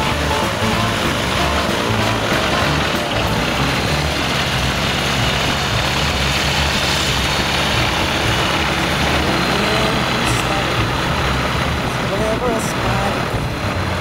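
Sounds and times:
propeller engine running at low power: 0.0 - 14.0.

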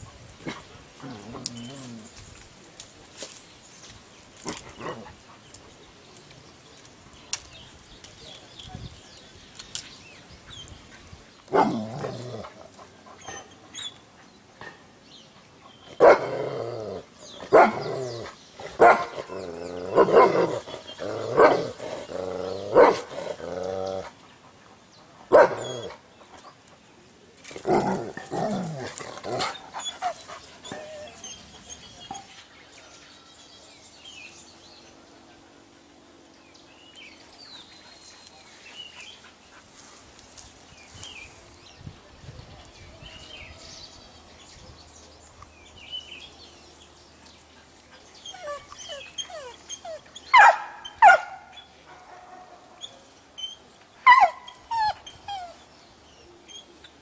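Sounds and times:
dog barking: 17.5 - 17.9, 18.8 - 19.1, 22.8 - 23.0, 25.3 - 25.6, 50.3 - 52.6.

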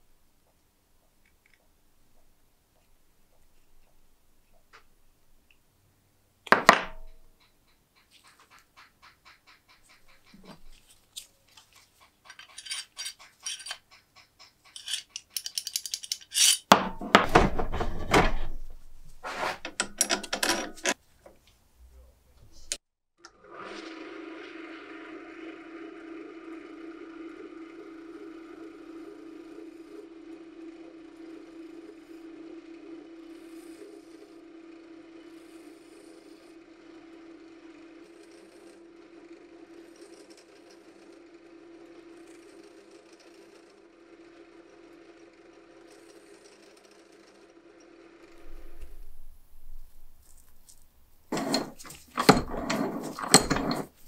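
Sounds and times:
metal parts handled on workbench: 12.3 - 13.8, 14.7 - 21.0, 48.4 - 54.0
loud scraping: 16.4 - 19.8, 48.3 - 54.0
lathe running: 23.4 - 50.5, 51.2 - 54.0.

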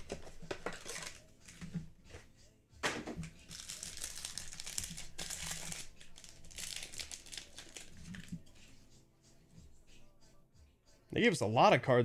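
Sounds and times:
foil wrapper crinkling: 0.6 - 1.2, 3.5 - 8.3.

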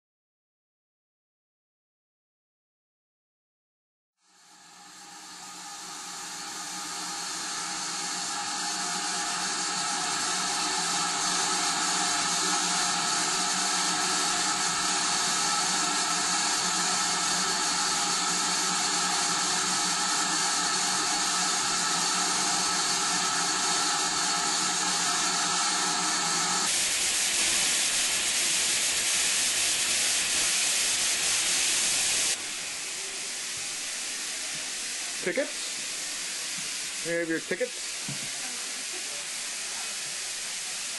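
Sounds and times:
steam locomotive hissing steam: 4.2 - 40.9.

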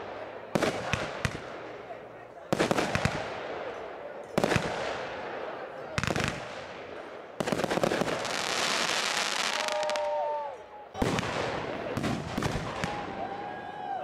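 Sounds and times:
fireworks bangs: 0.0 - 3.8, 4.4 - 10.2, 11.0 - 13.2.

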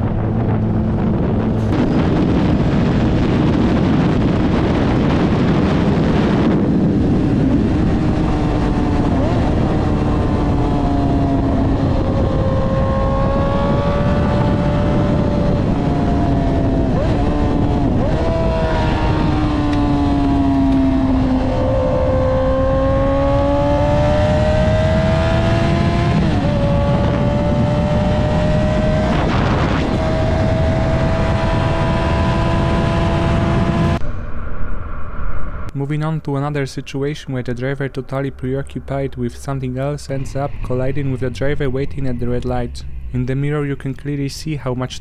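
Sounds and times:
motorcycle engine revving: 0.0 - 34.2
wind and road noise: 0.0 - 45.0.

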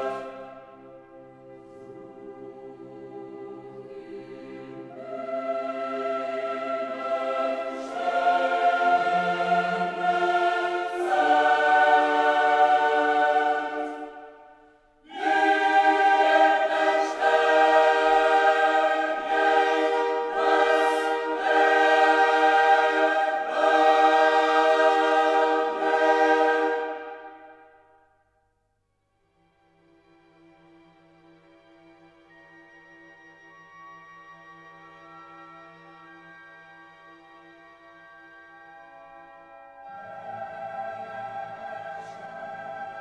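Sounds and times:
choir singing held chords: 0.0 - 28.2, 39.2 - 43.0.

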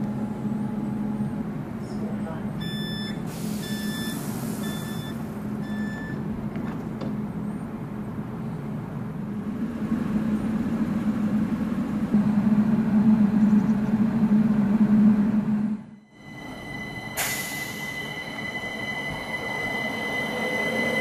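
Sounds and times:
tram humming: 0.0 - 21.0
short electronic beep: 2.6 - 6.2.

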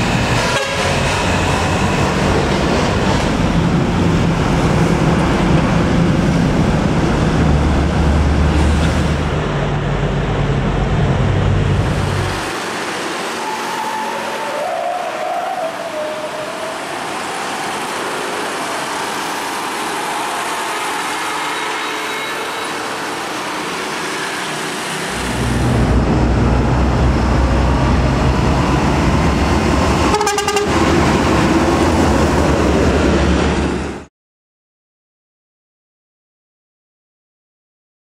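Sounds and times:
tanker truck low rumble: 0.0 - 12.6, 25.1 - 34.0
truck engine and tyre noise: 0.0 - 34.1.

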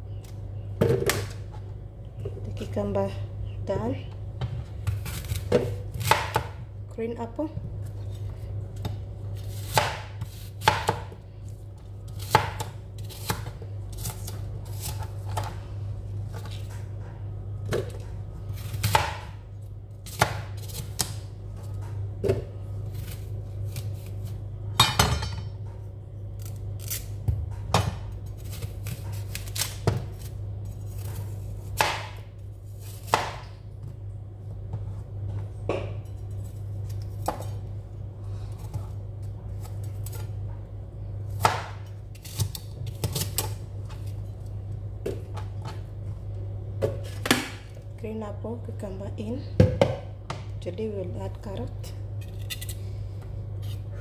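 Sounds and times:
knife slicing apple on board: 8.8 - 11.1.

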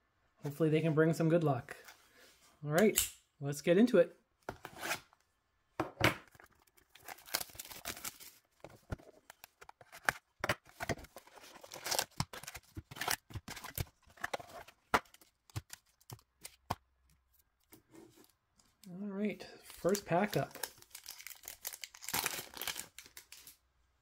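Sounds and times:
packaging tearing and crinkling: 6.5 - 8.4, 10.8 - 14.0, 19.7 - 23.6.

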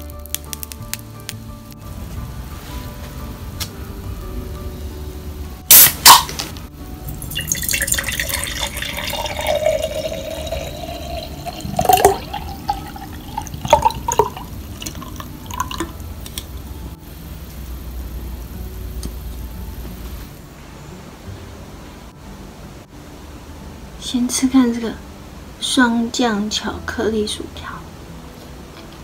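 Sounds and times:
liquid pouring into glass: 7.1 - 16.0.

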